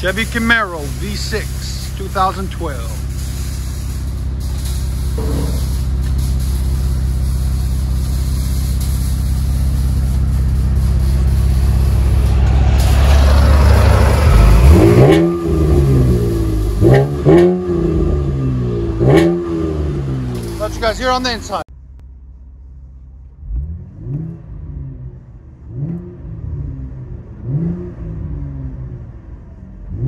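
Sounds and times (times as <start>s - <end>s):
car engine idling: 0.0s - 27.4s
engine revving blips: 9.3s - 20.6s.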